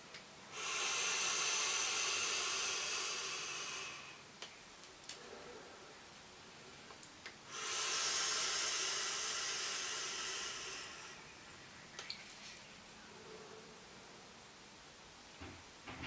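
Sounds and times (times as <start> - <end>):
vape hiss of air and vapour: 0.5 - 4.4, 7.4 - 11.4.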